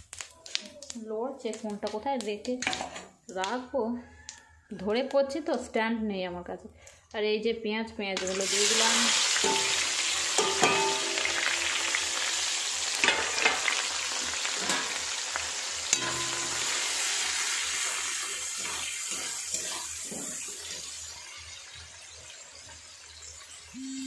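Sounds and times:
onions sizzling in hot oil: 0:08.2 - 0:24.0
spatula scraping a pan: 0:15.9 - 0:21.8.

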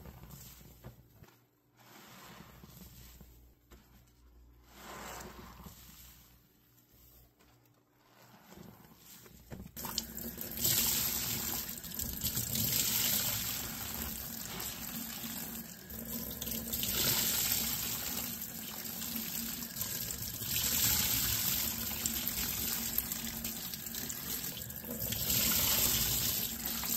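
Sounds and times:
tap water running into sink: 0:09.8 - 0:26.9.

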